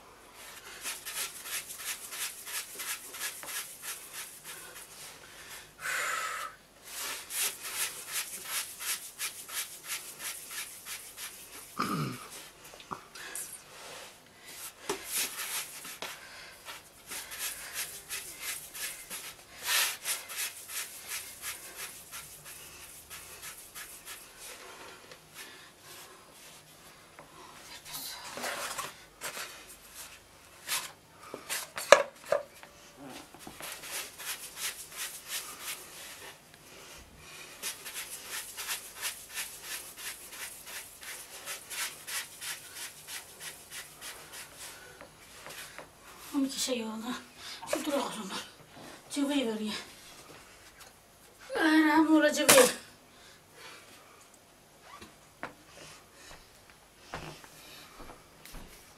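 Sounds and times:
hands rubbing dough on a board: 0.5 - 5.6, 6.8 - 11.8, 13.7 - 26.7, 33.2 - 36.4, 37.3 - 46.0.

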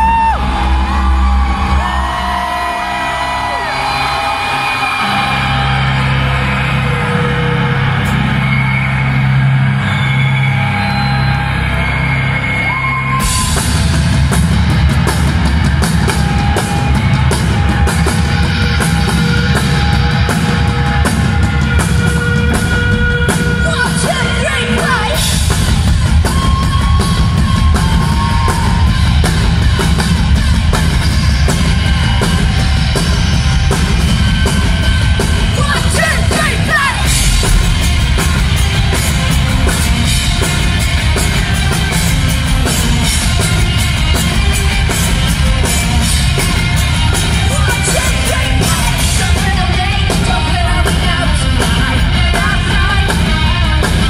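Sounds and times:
electric guitars: 0.0 - 54.0
rock band playing: 0.0 - 54.0
fast drumming: 13.2 - 54.0
woman singing: 47.5 - 54.0.

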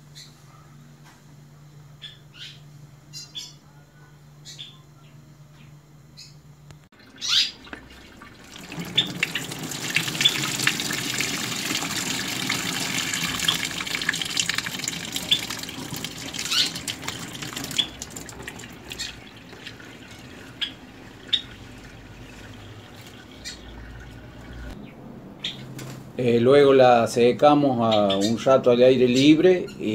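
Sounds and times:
water draining: 7.0 - 24.8
water pouring into sink: 7.0 - 24.8.

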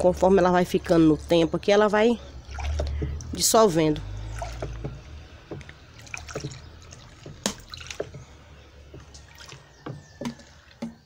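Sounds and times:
water sloshing in a basin: 0.0 - 11.0
small splashes and drips: 2.2 - 11.0
detergent stream pouring: 2.4 - 10.9.

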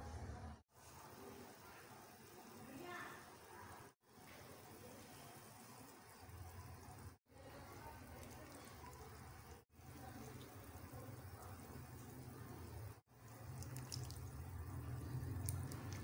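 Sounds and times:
water bubbling in a pan: 4.5 - 16.0.

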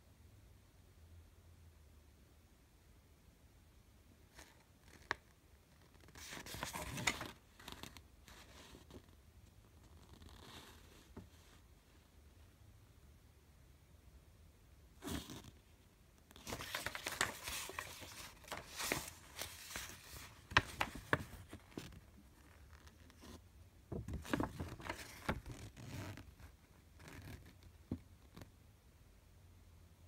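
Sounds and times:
paper rustling: 6.0 - 9.0, 16.3 - 26.4.

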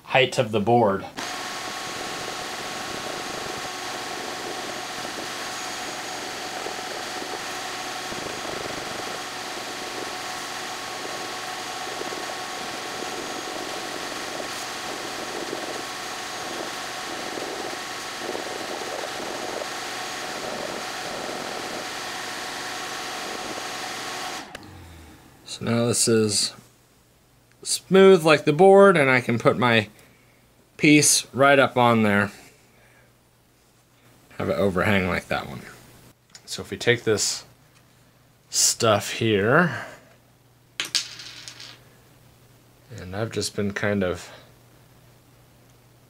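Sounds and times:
vacuum running: 1.2 - 26.1.

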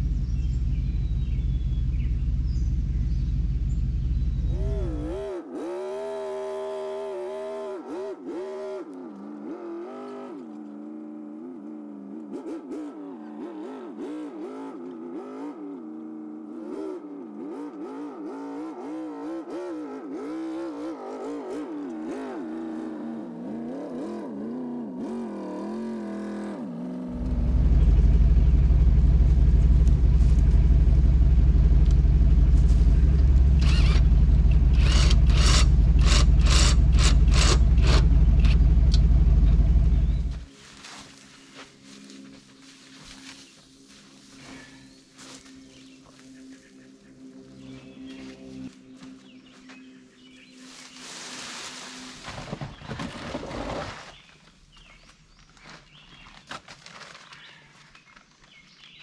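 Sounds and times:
loud low rumble: 0.0 - 5.2, 27.1 - 40.5
pickup truck engine: 0.0 - 40.5.

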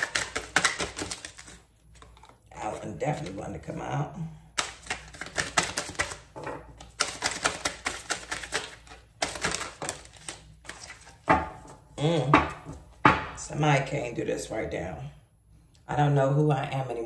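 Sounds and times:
cards being shuffled: 0.0 - 3.4, 4.5 - 11.3.

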